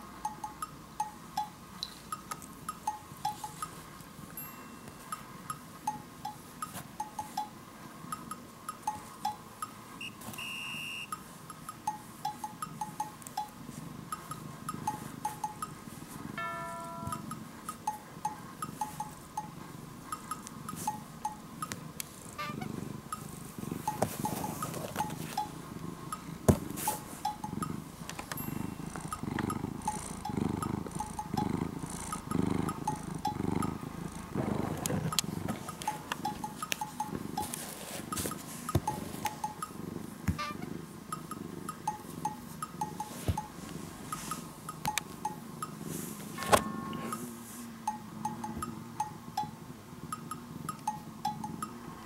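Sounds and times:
cat purring: 11.2 - 52.0
background music with plinking notes: 16.4 - 19.6.

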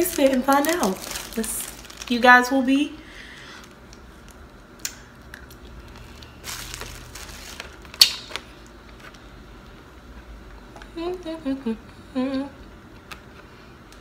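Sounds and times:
candy wrapper crinkling: 0.0 - 2.6, 3.6 - 9.2.

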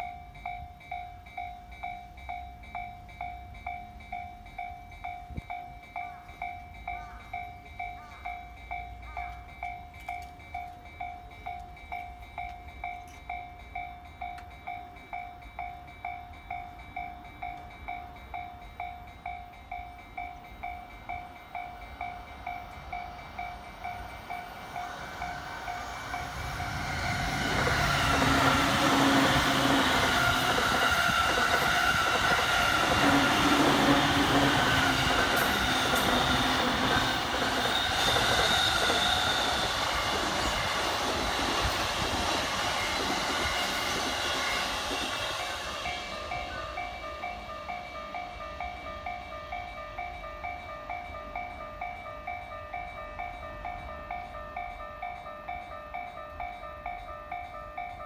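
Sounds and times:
level crossing warning bell: 0.0 - 58.0
train wheels rumbling on rails: 0.0 - 58.0
train motor hum: 21.9 - 47.0.

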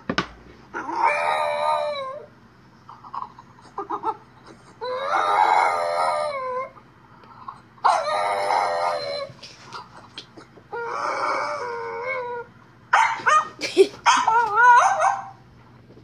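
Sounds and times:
dog howling: 0.8 - 2.3, 4.8 - 6.8, 7.8 - 9.4, 10.7 - 12.5, 14.1 - 15.3.

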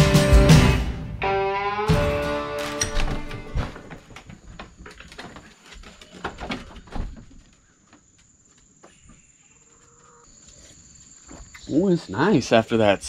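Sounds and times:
knocks and scuffs: 2.8 - 9.3
insects chirring: 2.8 - 13.0.

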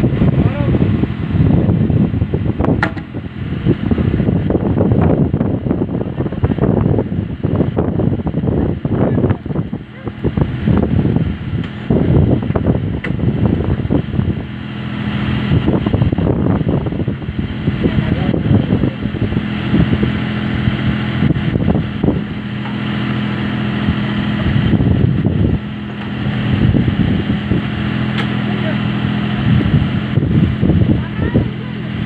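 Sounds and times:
tractor diesel engine under load: 0.0 - 32.0.

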